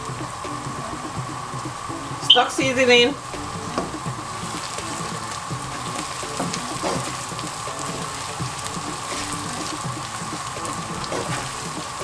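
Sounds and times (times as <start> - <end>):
sauce sizzling and crackling: 0.0 - 12.0
wooden spoon stirring: 3.2 - 12.0.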